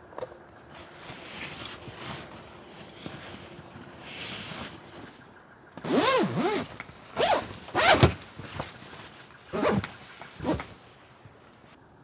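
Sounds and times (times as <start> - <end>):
zipper pulled: 5.8 - 8.2, 9.5 - 10.7.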